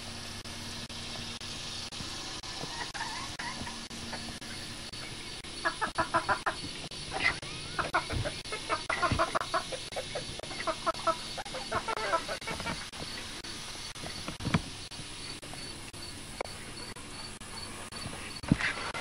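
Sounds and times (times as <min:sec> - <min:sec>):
turkey gobbling: 0:02.6 - 0:03.8, 0:05.6 - 0:12.8.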